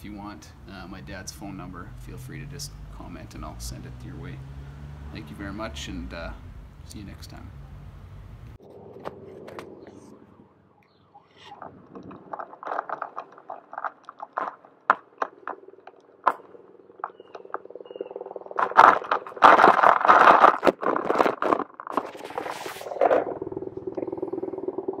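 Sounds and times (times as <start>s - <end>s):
skateboard rolling over pavement: 11.6s - 25.0s.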